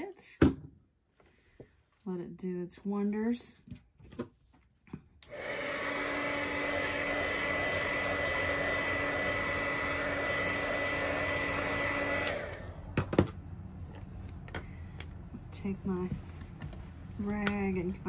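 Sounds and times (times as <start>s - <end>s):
electric blower motor whining: 5.2s - 13.3s.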